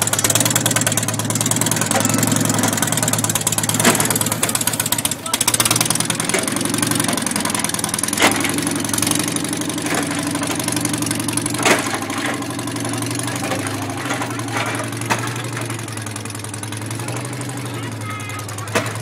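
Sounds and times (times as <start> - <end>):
robot engine running: 1.4 - 7.4.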